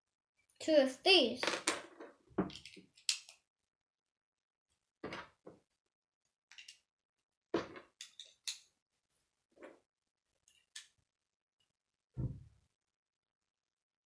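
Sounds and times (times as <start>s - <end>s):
plastic bricks clicking together: 2.4s - 3.4s.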